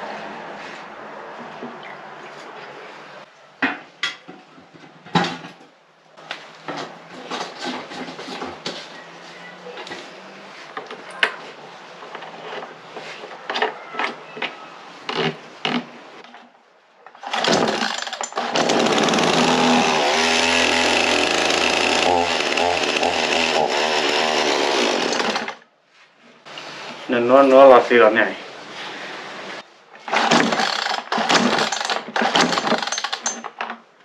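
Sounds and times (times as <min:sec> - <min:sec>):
chainsaw running: 0:17.2 - 0:25.6, 0:30.1 - 0:33.4.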